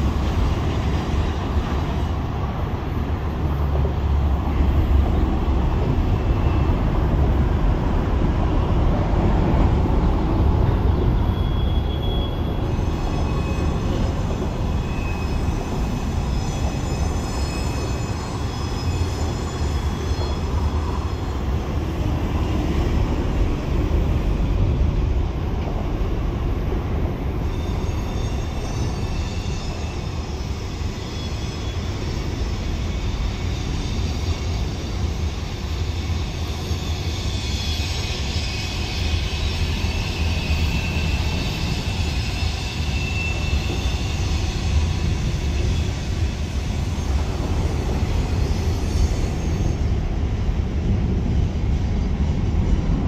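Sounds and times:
train wheels rumbling on rail: 0:00.0 - 0:53.0
high-pitched wheel squeal: 0:10.9 - 0:21.6, 0:27.4 - 0:49.9.

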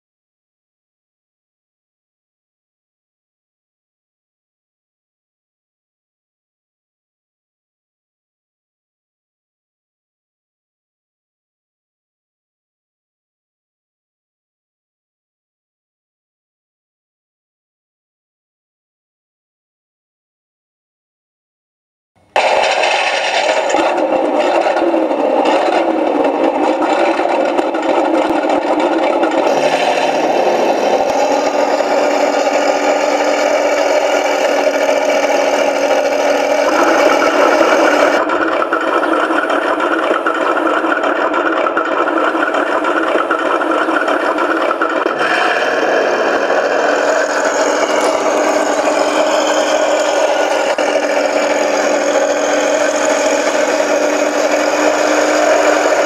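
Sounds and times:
model tank engine running: 0:22.2 - 0:56.0.

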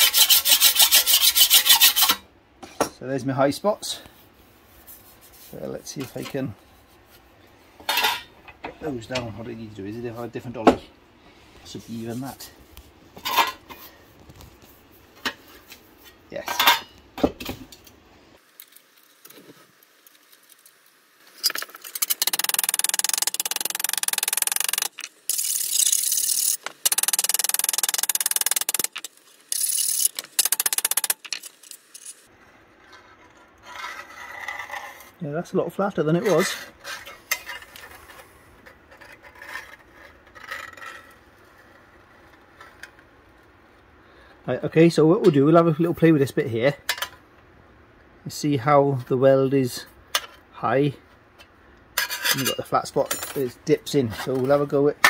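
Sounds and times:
steel rule scraping sheet steel: 0:00.0 - 0:02.2, 0:21.4 - 0:32.3
metal tools clattering: 0:07.8 - 0:08.3, 0:16.4 - 0:16.9, 0:52.0 - 0:54.7.

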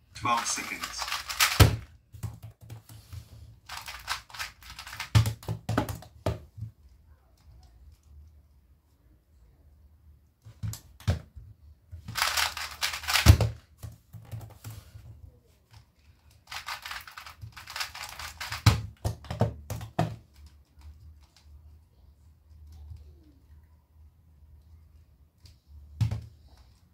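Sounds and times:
puzzle cube clicking: 0:00.4 - 0:02.4, 0:03.7 - 0:06.1, 0:12.1 - 0:13.4, 0:16.5 - 0:18.7.

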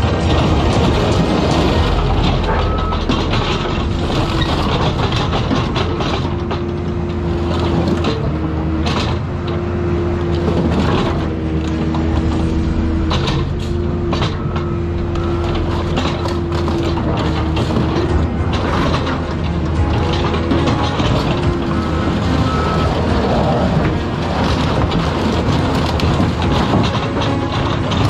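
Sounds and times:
hydraulic whine: 0:00.0 - 0:08.7, 0:10.8 - 0:25.0
metal being torn and crushed: 0:00.0 - 0:08.8, 0:15.0 - 0:28.0
excavator diesel engine drone: 0:00.0 - 0:28.0.

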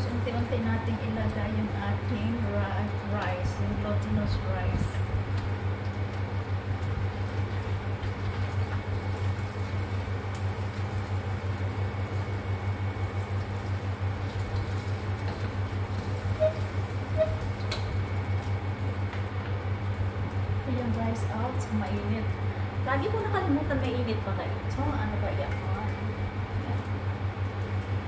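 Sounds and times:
gas burner low hum: 0:00.0 - 0:28.0
soft hiss of stir frying: 0:00.0 - 0:28.0.

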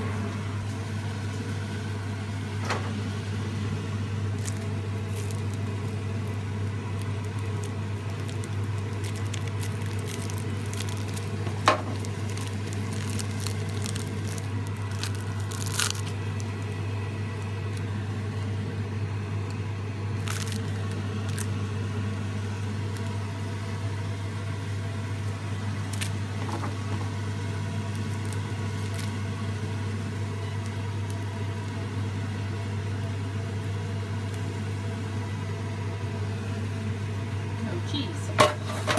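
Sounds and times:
steady low hum: 0:00.0 - 0:38.9
raw meat squishing: 0:04.3 - 0:16.8, 0:20.2 - 0:21.6
plastic film crinkling: 0:04.3 - 0:18.0, 0:20.1 - 0:21.6, 0:25.8 - 0:26.9, 0:27.8 - 0:31.8.

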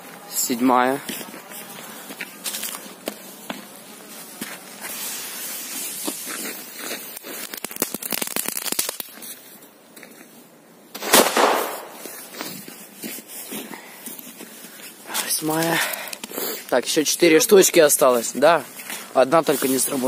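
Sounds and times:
crackling and crunching: 0:04.4 - 0:10.2
firecracker bang: 0:11.0 - 0:12.2.

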